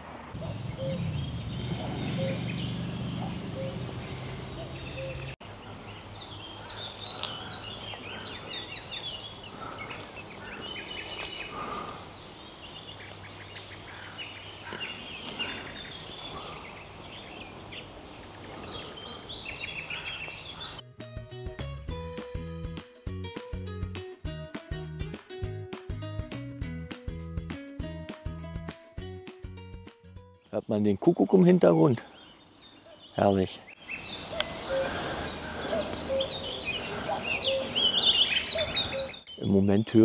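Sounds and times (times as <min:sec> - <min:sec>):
songbirds chirping and singing: 0:00.4 - 0:20.8, 0:30.4 - 0:40.0.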